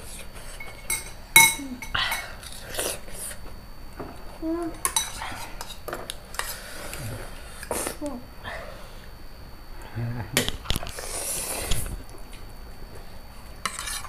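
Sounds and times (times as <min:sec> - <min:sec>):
forks clinking on ceramic plates: 0:00.6 - 0:02.3, 0:04.8 - 0:05.7.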